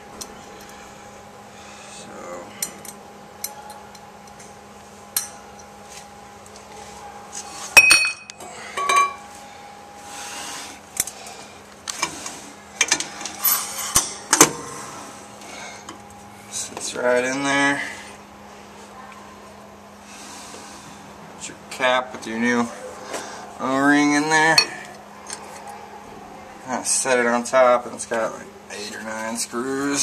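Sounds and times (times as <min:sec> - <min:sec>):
steady hum: 0:00.0 - 0:30.0
bright ringing metal clink: 0:07.8 - 0:09.2.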